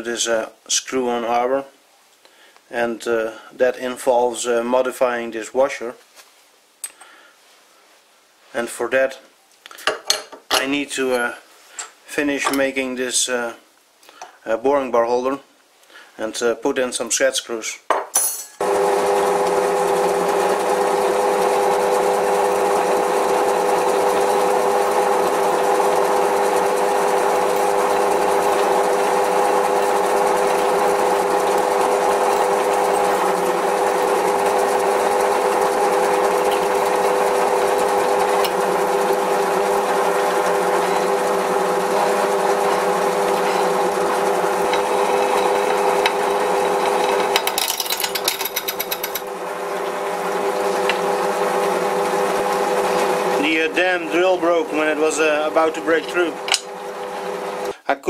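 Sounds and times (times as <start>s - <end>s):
drill cutting into metal: 18.6s - 57.1s
drill press humming: 18.6s - 57.8s.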